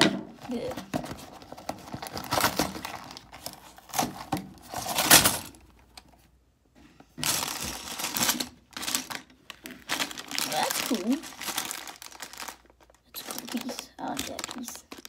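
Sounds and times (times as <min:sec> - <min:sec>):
packaging crinkling: 0:00.5 - 0:06.0, 0:07.2 - 0:15.0
plastic pieces rattling: 0:07.2 - 0:15.0.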